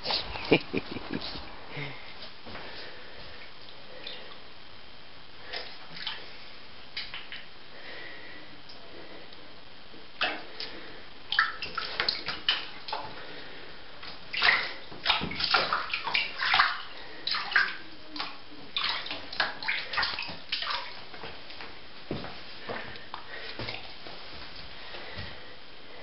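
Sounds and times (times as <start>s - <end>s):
water splashing in a bathtub: 2.7s - 4.4s, 5.4s - 7.5s, 10.2s - 25.2s.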